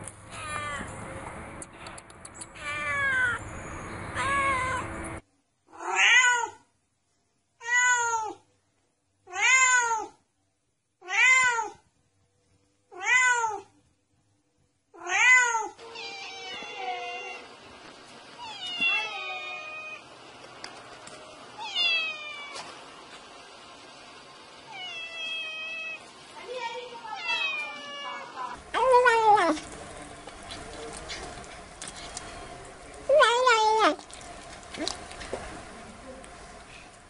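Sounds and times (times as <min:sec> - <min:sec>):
cat meowing: 0:02.6 - 0:03.4, 0:04.1 - 0:04.9, 0:05.7 - 0:06.6, 0:07.6 - 0:08.4, 0:09.3 - 0:10.2, 0:11.0 - 0:11.8, 0:12.9 - 0:13.7, 0:15.0 - 0:17.5, 0:18.4 - 0:20.0, 0:21.6 - 0:22.7, 0:24.7 - 0:26.0, 0:27.1 - 0:29.4.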